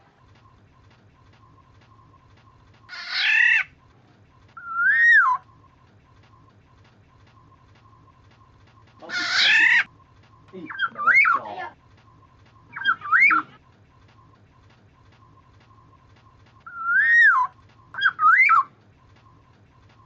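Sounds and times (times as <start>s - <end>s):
bird harsh rasping call: 2.9s - 3.7s, 9.0s - 9.9s, 12.7s - 13.6s
bird fluting whistles: 2.9s - 3.8s, 4.6s - 5.5s, 12.6s - 13.6s, 16.6s - 18.7s.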